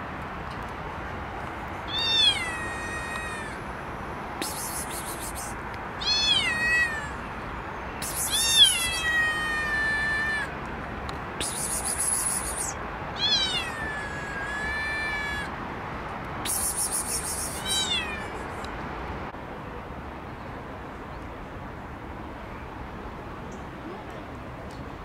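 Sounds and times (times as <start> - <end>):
cat meowing: 1.9 - 3.6, 4.5 - 7.3, 8.0 - 10.6, 11.4 - 15.5, 16.6 - 18.5
short high hissing: 4.4 - 5.6, 11.4 - 12.7, 16.5 - 17.7.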